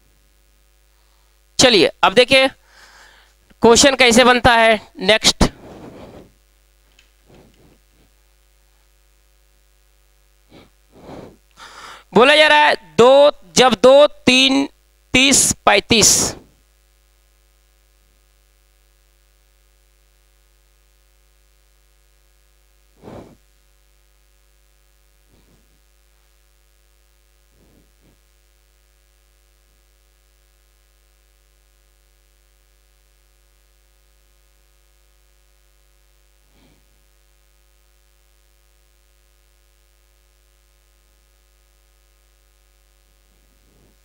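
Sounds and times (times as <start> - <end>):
steady electrical hum: 0.0 - 44.0
short faint noises: 5.2 - 8.9.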